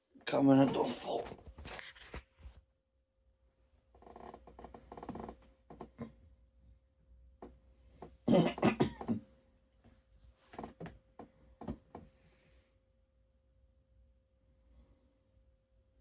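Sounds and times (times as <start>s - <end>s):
man coughing: 8.3s - 9.2s
throat sounds: 8.3s - 9.2s.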